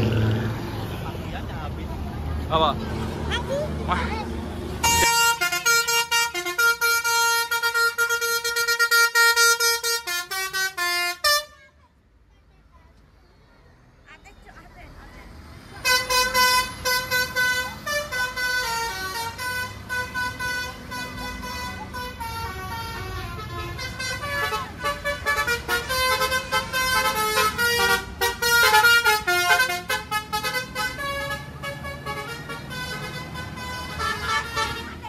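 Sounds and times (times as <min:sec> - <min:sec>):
bus air horn melody: 0:04.8 - 0:11.8, 0:15.8 - 0:35.0.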